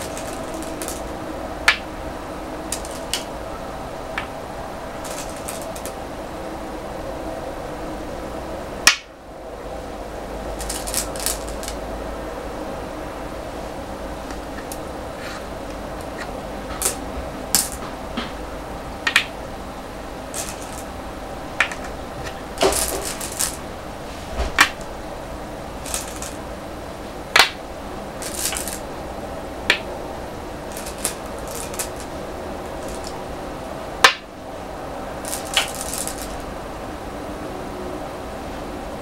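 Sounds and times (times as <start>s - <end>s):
hand rummaging in bowl of stones: 0.0s - 1.1s, 5.0s - 5.9s, 10.6s - 11.8s, 16.8s - 17.8s, 20.3s - 20.9s, 22.6s - 23.6s, 25.8s - 26.4s, 28.2s - 28.8s, 30.7s - 32.1s, 32.8s - 33.2s, 35.3s - 36.4s
stones clicking on wooden board: 0.0s - 1.1s, 2.7s - 3.3s, 5.0s - 6.0s, 10.6s - 11.8s, 16.0s - 18.3s, 19.1s - 19.3s, 20.4s - 20.9s, 21.6s - 23.6s, 25.8s - 26.4s, 27.4s - 27.6s, 28.2s - 28.8s, 30.7s - 32.1s, 32.8s - 33.2s, 35.3s - 36.4s
steady background hum: 0.0s - 39.0s.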